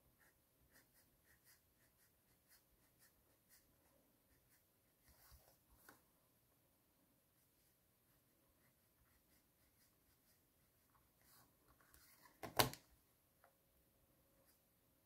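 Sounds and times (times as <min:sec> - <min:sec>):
pen scratching on paper: 0:00.2 - 0:05.6, 0:08.1 - 0:11.4.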